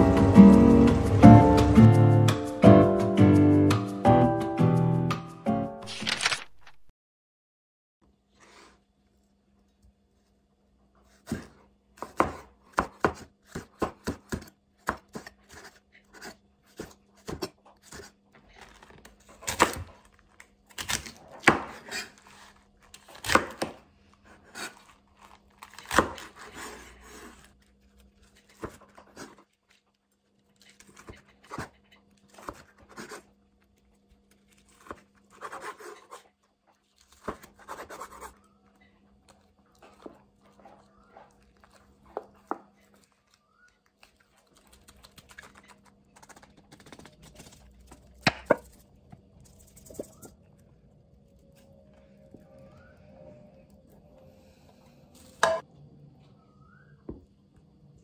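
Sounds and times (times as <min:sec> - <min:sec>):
handling noises: 0:05.8 - 0:06.9
knife chopping on cutting board: 0:11.2 - 0:18.1.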